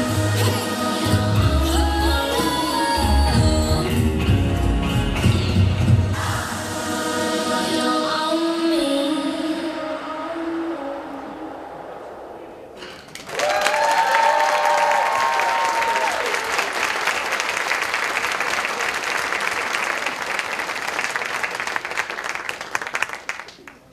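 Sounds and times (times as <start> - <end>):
audience clapping: 13.0 - 23.9
people cheering and whooping: 13.1 - 17.2.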